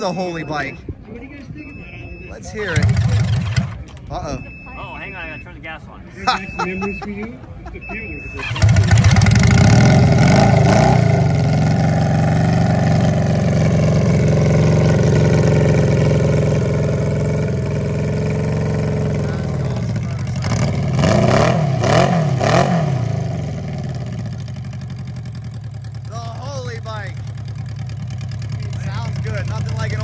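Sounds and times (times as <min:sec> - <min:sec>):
motorcycle engine revving: 0:02.6 - 0:04.1, 0:08.4 - 0:30.0
motorcycle engine idling: 0:02.6 - 0:04.2, 0:08.4 - 0:21.0, 0:23.0 - 0:30.0.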